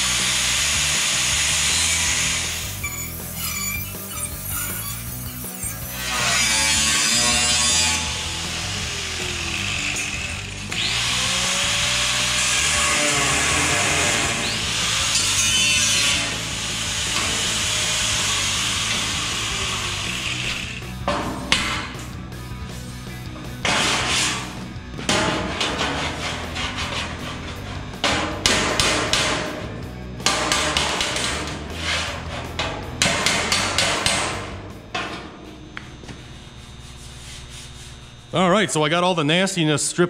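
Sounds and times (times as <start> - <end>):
angle grinder on steel: 0.0 - 21.0
hammering on sheet steel: 23.6 - 34.6.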